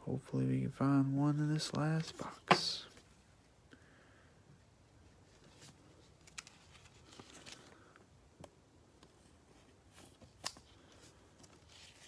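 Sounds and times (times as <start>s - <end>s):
soft rustles of cards: 1.2s - 3.7s, 4.9s - 12.0s.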